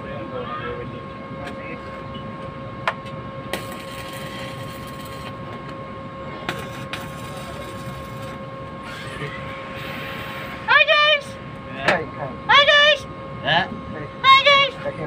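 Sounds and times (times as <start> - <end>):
steady hum: 0.0 - 15.0
welding arc crackling and hissing: 3.5 - 5.4, 6.5 - 8.3, 8.9 - 10.6.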